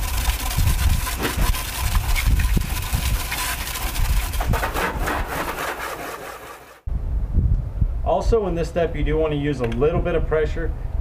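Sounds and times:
hose spray hitting car: 0:00.0 - 0:06.8.

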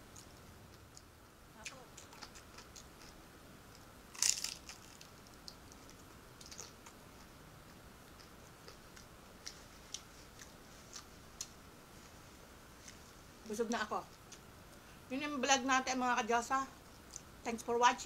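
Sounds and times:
chewing with soft clicks: 0:00.0 - 0:03.9, 0:04.9 - 0:11.6, 0:16.9 - 0:17.3
crunchy bite into spring roll: 0:04.1 - 0:05.1.

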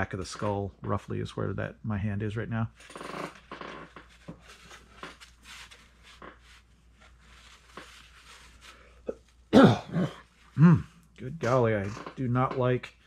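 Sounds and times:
fur rustling under hands: 0:04.6 - 0:09.0.

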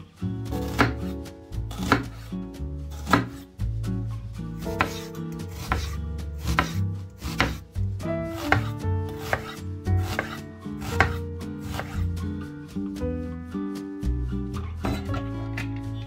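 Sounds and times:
soft background music: 0:00.0 - 0:16.0
knife chopping on wooden board: 0:00.6 - 0:02.3, 0:02.9 - 0:03.5, 0:04.6 - 0:07.6, 0:08.3 - 0:12.1.

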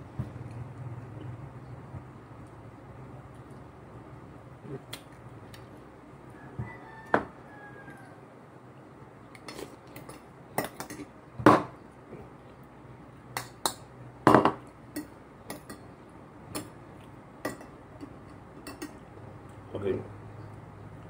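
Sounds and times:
cutlery clinking on plate: 0:14.3 - 0:15.9, 0:17.5 - 0:19.0.

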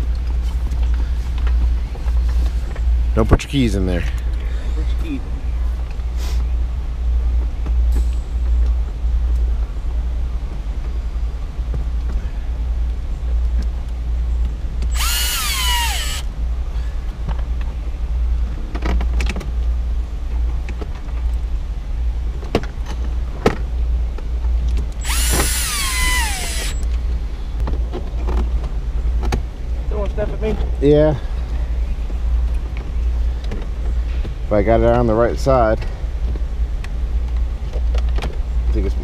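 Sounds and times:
steady low hum: 0:00.0 - 0:39.0
power tool whine: 0:14.9 - 0:16.3, 0:25.0 - 0:26.8.

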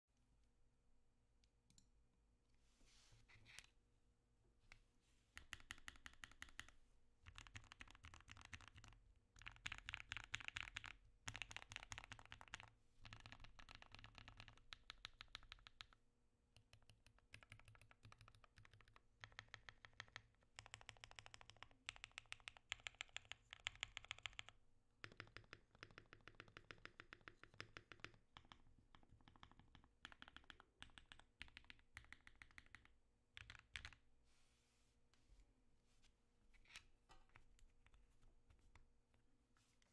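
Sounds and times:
mechanical keyboard typing: 0:05.4 - 0:16.0, 0:16.6 - 0:34.0.

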